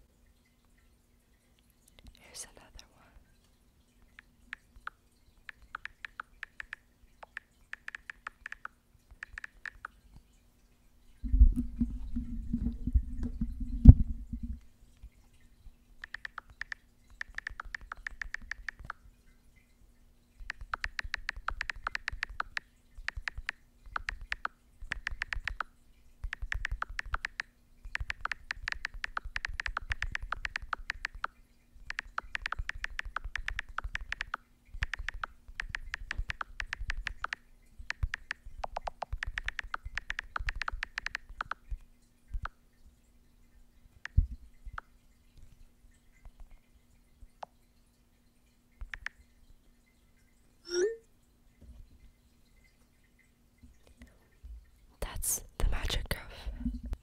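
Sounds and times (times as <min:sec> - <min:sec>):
tapping on a touchscreen: 0:04.1 - 0:10.0, 0:16.0 - 0:19.0, 0:20.4 - 0:42.6, 0:44.0 - 0:44.9, 0:48.8 - 0:49.2.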